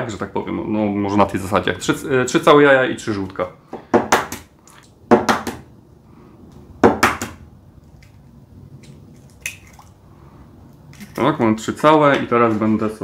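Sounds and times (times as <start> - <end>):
eggshell breaking open: 8.8 - 10.0.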